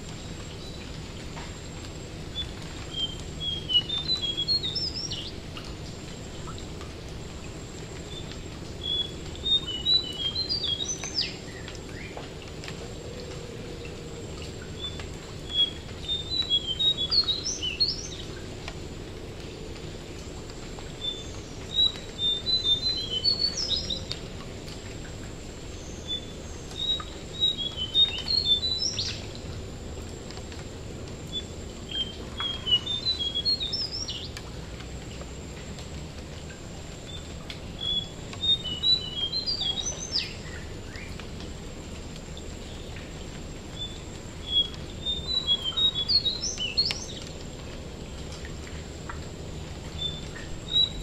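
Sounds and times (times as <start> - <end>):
rain hissing: 0.0 - 51.0.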